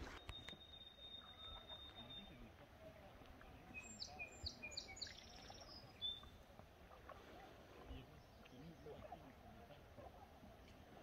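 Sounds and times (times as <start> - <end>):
songbird singing: 0.0 - 6.6, 7.7 - 9.4.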